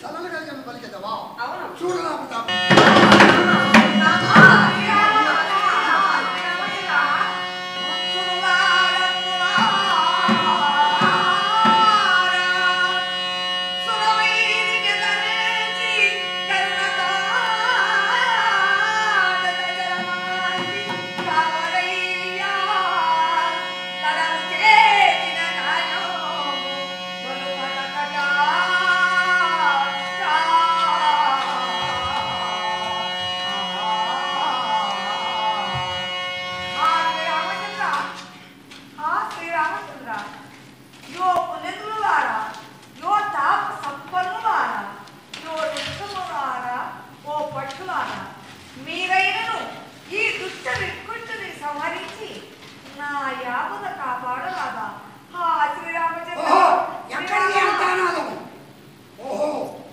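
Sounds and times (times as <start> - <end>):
hand drum beats: 2.5 - 6.1, 9.5 - 12.2
person singing: 2.5 - 38.2
steady held drone: 2.5 - 40.0.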